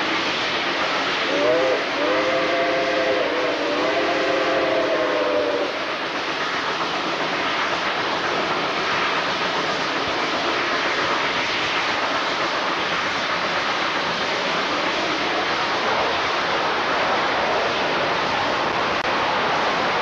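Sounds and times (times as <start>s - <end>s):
moving train rushing: 0.0s - 20.0s
steam whistle: 1.2s - 5.8s.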